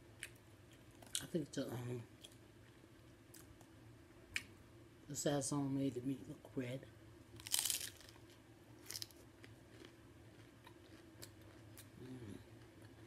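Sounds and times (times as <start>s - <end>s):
taco shell crunching: 7.4s - 12.0s
chewing crunches: 7.4s - 13.0s.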